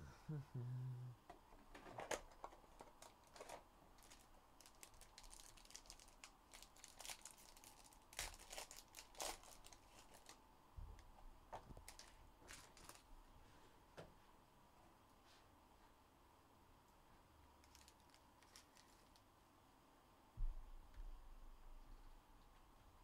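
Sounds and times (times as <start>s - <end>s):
plastic wrapping crinkling: 1.7s - 10.4s, 11.0s - 13.1s, 17.6s - 19.2s
foil pack tearing: 2.0s - 10.4s.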